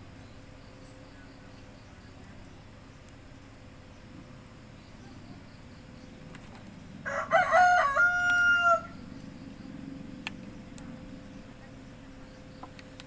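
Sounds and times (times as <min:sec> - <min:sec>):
rooster crowing: 0:07.0 - 0:09.0.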